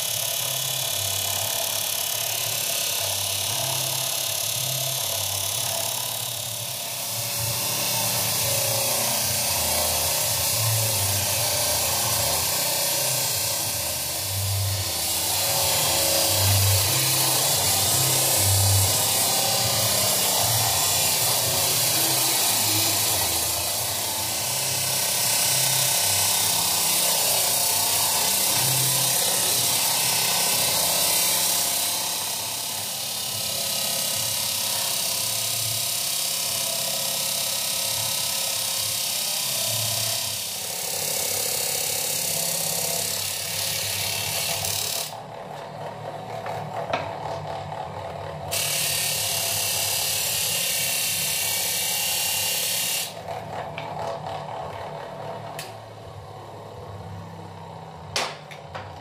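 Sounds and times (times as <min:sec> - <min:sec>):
background music: 0:00.1 - 0:36.9.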